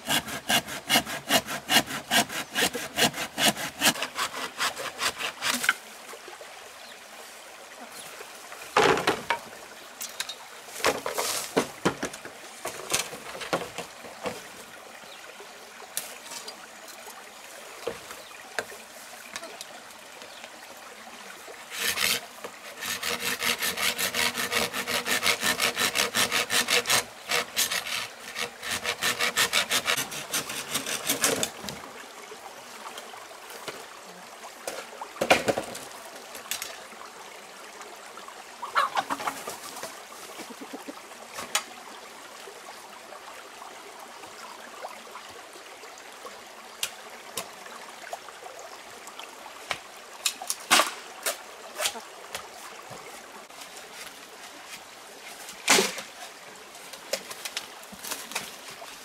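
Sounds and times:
blade sawing across bamboo: 0.0s - 5.8s, 21.7s - 31.6s.

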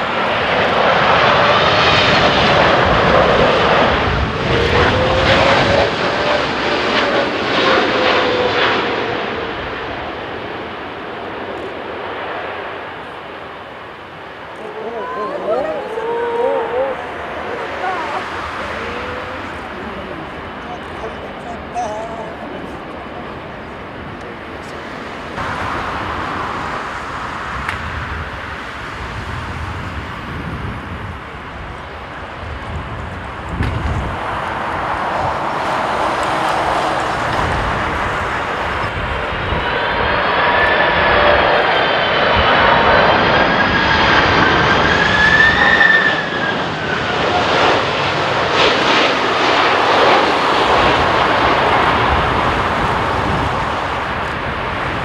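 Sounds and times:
jet engines roaring: 0.0s - 55.0s
high fan whine: 13.4s - 41.8s.

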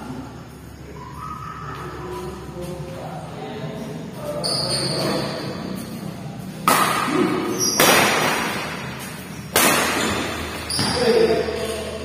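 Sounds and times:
shoes squeaking on court floor: 4.1s - 6.6s, 7.2s - 12.0s
racket striking shuttlecock: 6.6s - 11.1s.

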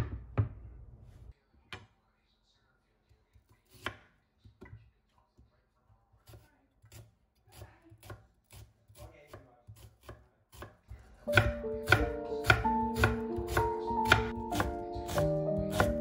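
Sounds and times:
knife chopping onion on wooden board: 3.4s - 4.7s, 6.2s - 16.0s
background music: 11.3s - 16.0s.

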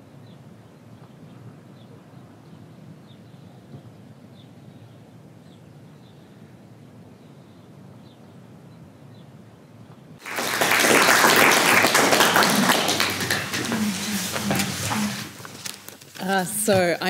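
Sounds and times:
audience applause: 10.2s - 15.9s.

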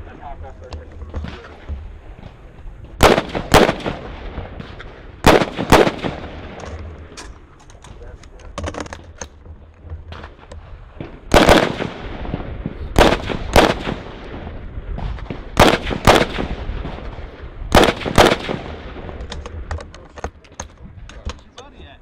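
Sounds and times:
rifle shots: 3.0s - 7.2s, 10.1s - 19.7s.

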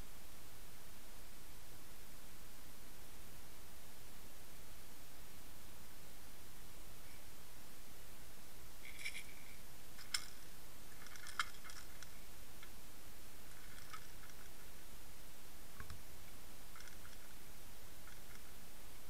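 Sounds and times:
faint clicks and ticks: 8.8s - 12.8s, 13.5s - 14.9s, 15.8s - 19.0s.

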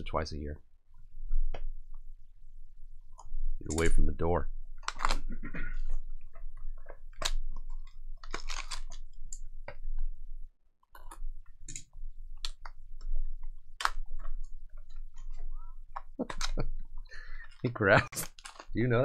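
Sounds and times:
plastic shrink wrap crinkling: 4.8s - 10.0s, 12.2s - 19.0s.

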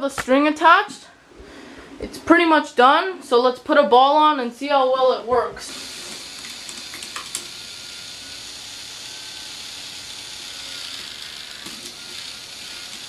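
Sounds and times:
toy motor whirring: 5.6s - 13.0s.

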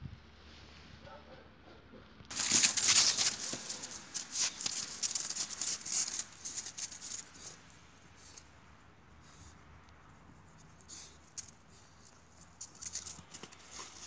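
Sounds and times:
footsteps crunching on icy snow: 2.3s - 7.6s, 12.6s - 14.0s.

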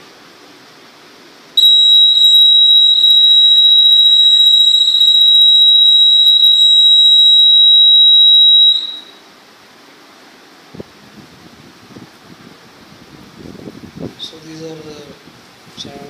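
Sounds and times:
high-pitched warning buzzer: 1.6s - 9.2s.

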